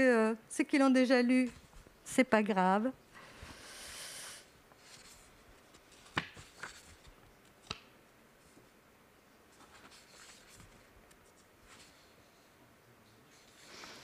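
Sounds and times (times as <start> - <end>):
paper rustling: 4.8 - 7.8, 9.5 - 12.1.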